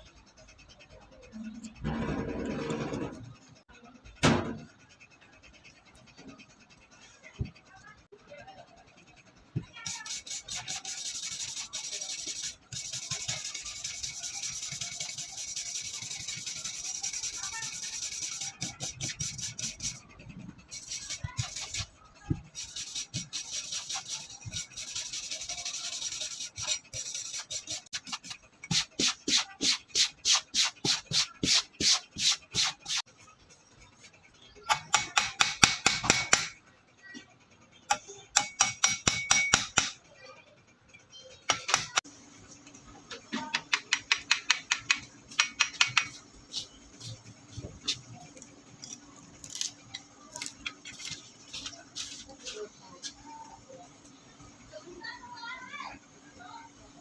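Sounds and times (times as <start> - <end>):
file rasping on steel blade: 9.8 - 33.0.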